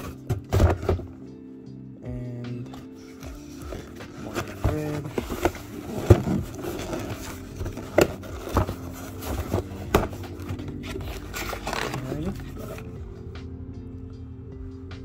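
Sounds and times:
cardboard rustling: 0.0s - 1.2s, 2.6s - 13.0s
box knocking inside cardboard carton: 4.2s - 10.6s.

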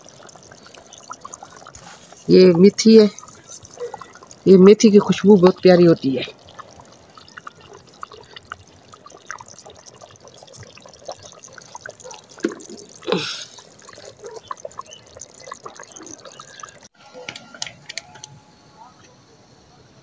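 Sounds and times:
curry bubbling in a pot: 0.0s - 16.9s.

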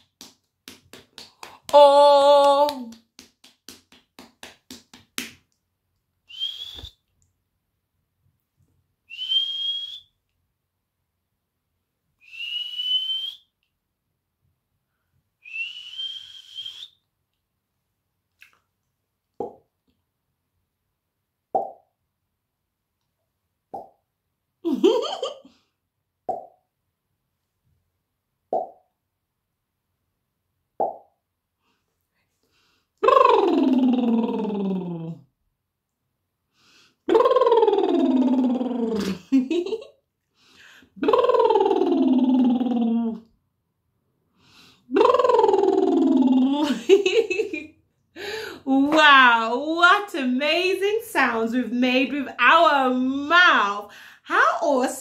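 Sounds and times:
breathy whistles through lips: 6.3s - 7.1s, 9.1s - 10.2s, 12.2s - 13.5s, 15.4s - 17.0s
finger pops from mouth: 19.4s - 19.6s, 21.6s - 21.8s, 23.7s - 24.0s, 26.3s - 26.6s, 28.5s - 28.8s, 30.8s - 31.1s.

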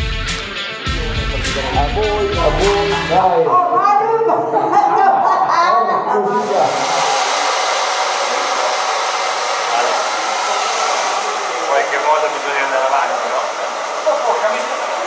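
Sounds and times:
hair dryer blowing: 6.3s - 15.0s.

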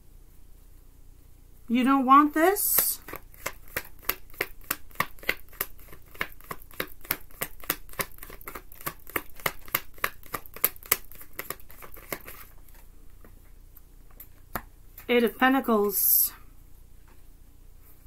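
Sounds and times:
cards being shuffled: 2.7s - 12.9s.

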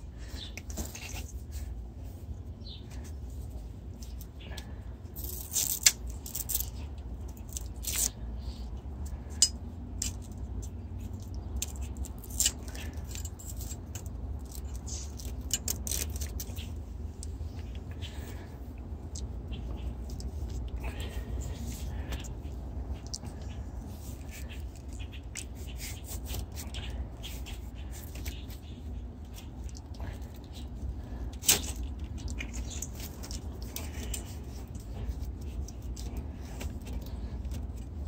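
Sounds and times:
rustling and scratching of wiring: 0.0s - 38.0s
steady low rumble: 0.0s - 38.0s.

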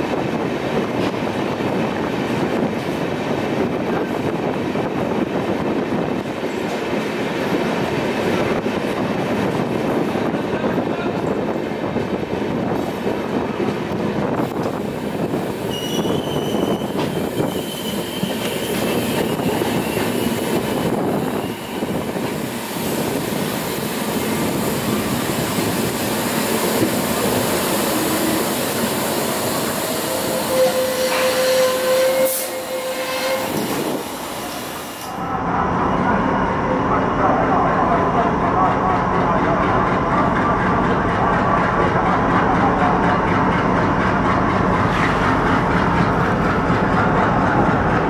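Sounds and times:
train wheels rumbling on rails: 0.0s - 35.2s, 37.5s - 48.0s
high-pitched wheel squeal: 15.7s - 20.4s, 29.8s - 33.7s.

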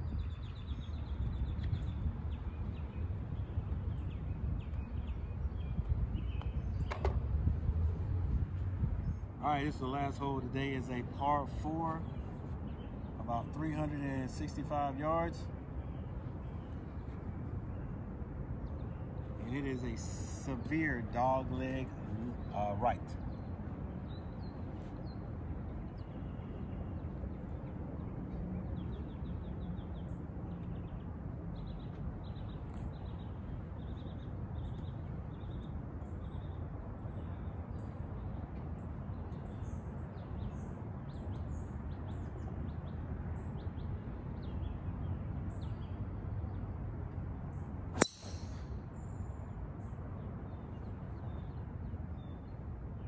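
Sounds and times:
birds chirping: 0.0s - 7.2s, 9.0s - 46.6s, 47.5s - 52.6s
golf club striking ball: 48.0s - 48.8s.

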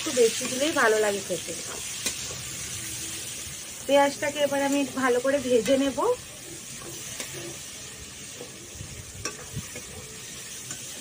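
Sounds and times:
onions sizzling in oil: 0.0s - 11.0s
metal spatula scraping pan: 5.3s - 11.0s.

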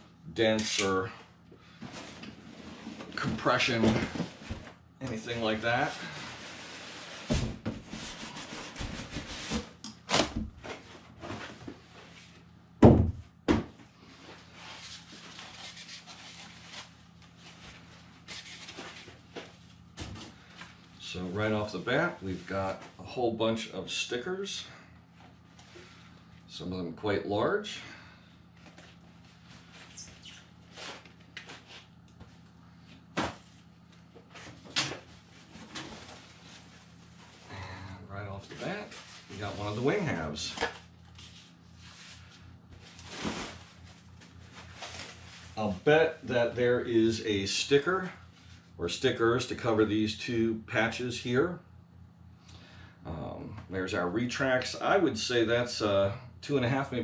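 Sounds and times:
foam sheets rustling: 41.1s - 45.8s.

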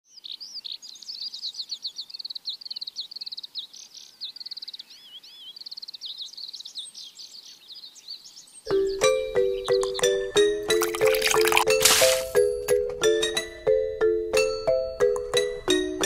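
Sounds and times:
birds chirping and trilling: 0.1s - 10.4s.

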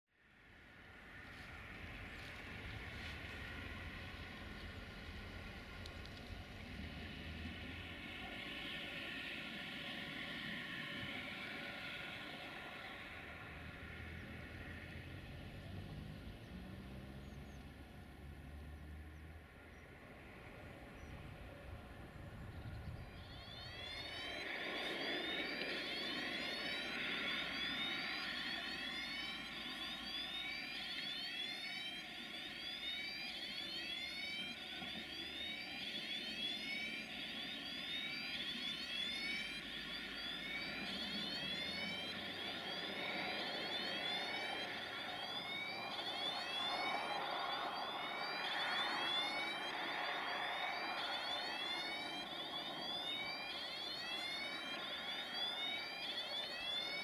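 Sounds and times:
wheels squealing on rails: 1.0s - 57.0s
freight train approaching: 1.2s - 30.9s.

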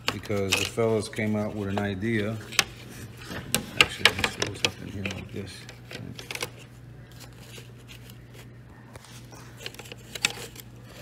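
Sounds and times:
steady low hum: 0.0s - 11.0s
plastic pieces clicking and rustling: 3.5s - 6.6s.

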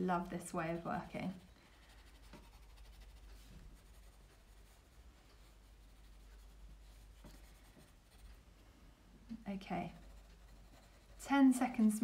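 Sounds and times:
pencil scratching on paper: 0.7s - 8.4s, 9.7s - 12.0s.

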